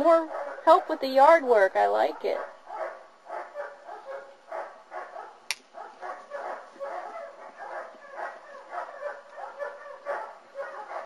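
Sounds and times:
puppies crying: 2.1 - 11.0
sharp click: 5.5 - 5.7.

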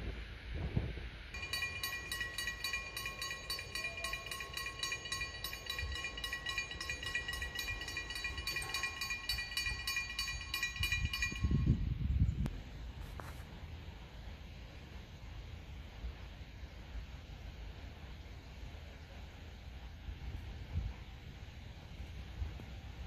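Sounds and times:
level-crossing warning bell ringing: 1.4 - 12.1.

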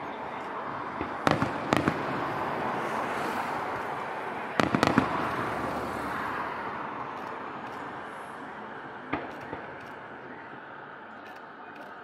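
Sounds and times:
steady noisy background: 0.0 - 12.0
fireworks bangs: 0.9 - 6.5, 9.0 - 10.2.

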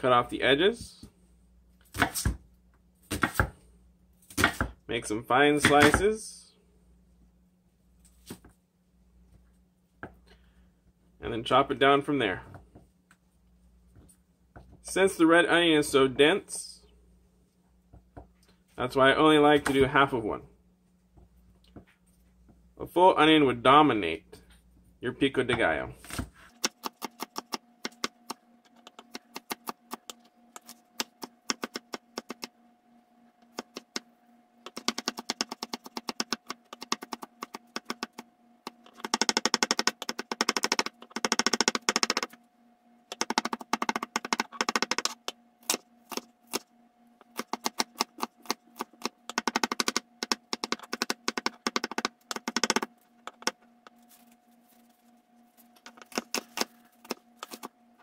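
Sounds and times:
knife chopping on wooden board: 4.3 - 4.8, 5.6 - 6.0.

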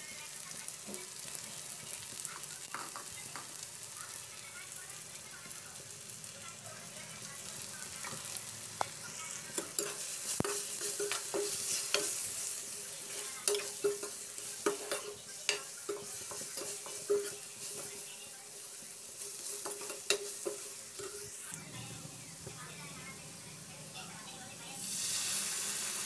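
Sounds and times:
vegetables sizzling in pan: 0.0 - 26.0
metal spoon scraping pan: 8.9 - 18.1, 19.1 - 21.4.

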